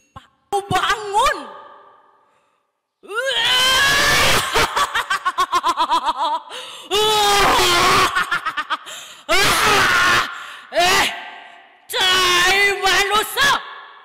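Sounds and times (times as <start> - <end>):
woman laughing theatrically: 4.1 - 7.0, 7.6 - 9.6.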